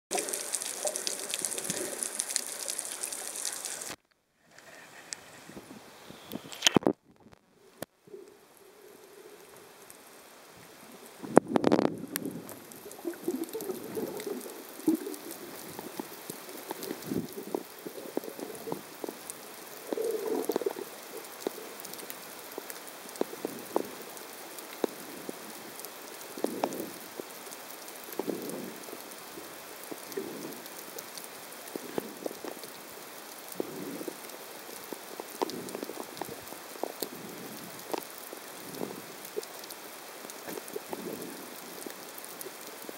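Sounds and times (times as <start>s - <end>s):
water swishing: 0.1s - 4.0s
underwater crackle of clicks: 0.1s - 5.2s, 6.3s - 7.9s, 11.3s - 24.0s, 35.4s - 42.6s.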